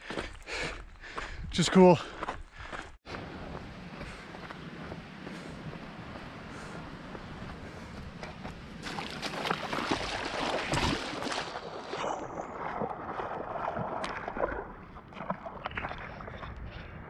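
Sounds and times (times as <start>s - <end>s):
water splashing in a creek: 6.6s - 17.0s.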